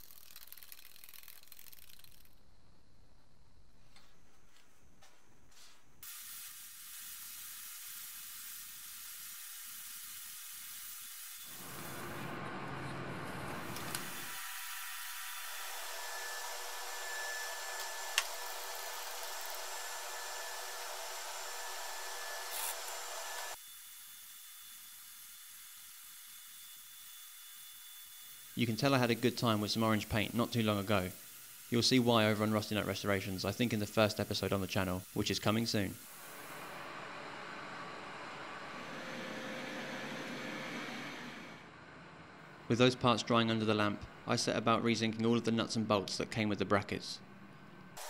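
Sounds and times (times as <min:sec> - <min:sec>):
spray painting air hiss: 0:00.0 - 0:02.4, 0:06.0 - 0:12.4, 0:28.6 - 0:36.5.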